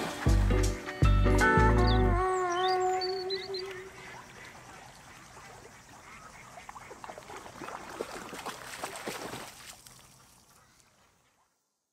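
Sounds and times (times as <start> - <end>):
dog splashing in water: 4.1 - 10.4.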